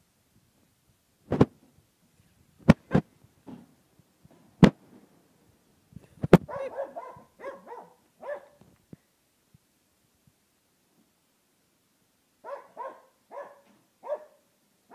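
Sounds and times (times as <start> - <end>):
dog barking: 6.5 - 8.6, 12.4 - 14.9.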